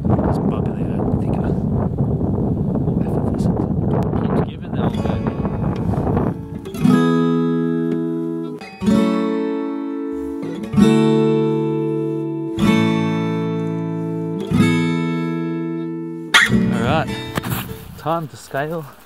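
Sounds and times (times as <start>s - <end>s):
acoustic guitar strumming chords: 4.9s - 17.9s.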